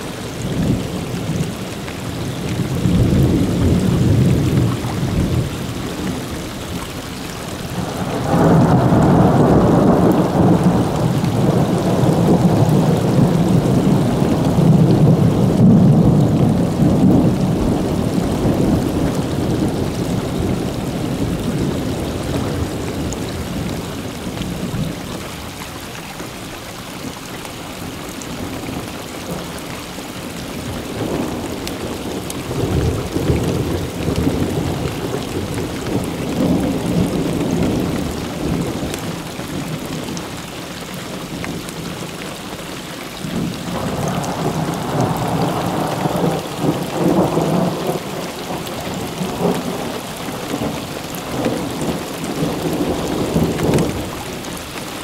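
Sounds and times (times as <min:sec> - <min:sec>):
thunder rumbling: 0:00.0 - 0:06.7, 0:07.5 - 0:24.9, 0:43.2 - 0:54.4
steady rain: 0:00.0 - 0:55.0.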